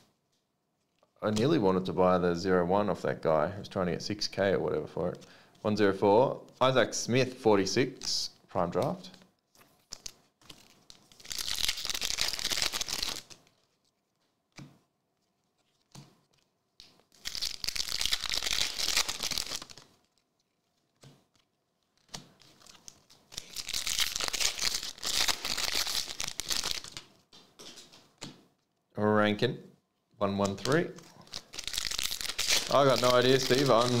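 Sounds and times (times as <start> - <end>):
foil wrappers tearing and crinkling: 9.9 - 13.8, 17.1 - 20.9, 21.9 - 27.0, 30.6 - 34.0.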